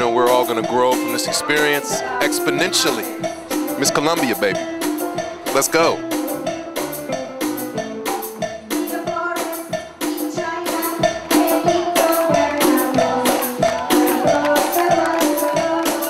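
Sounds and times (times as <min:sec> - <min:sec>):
melodic instrument lines: 0:00.0 - 0:16.0
steady percussion beat: 0:00.0 - 0:16.0
woman singing: 0:00.1 - 0:03.8, 0:08.4 - 0:16.0.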